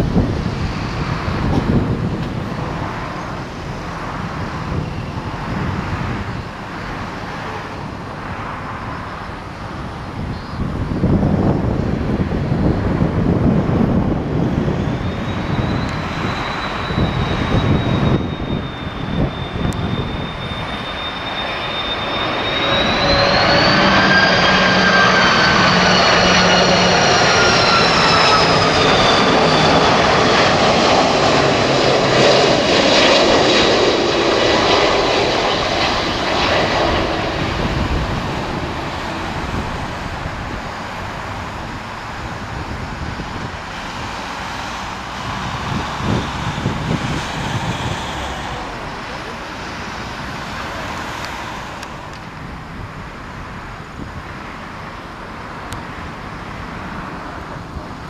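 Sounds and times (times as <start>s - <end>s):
wind on microphone: 0.0s - 21.4s, 22.1s - 54.8s
jet engines whining overhead: 0.0s - 58.0s.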